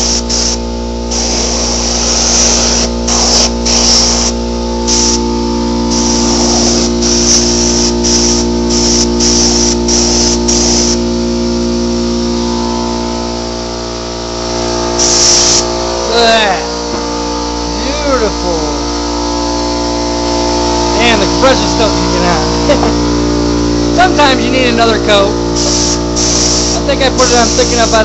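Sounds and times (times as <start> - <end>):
spray gun hissing in bursts: 0.0 - 11.3, 14.4 - 16.6, 25.1 - 28.0.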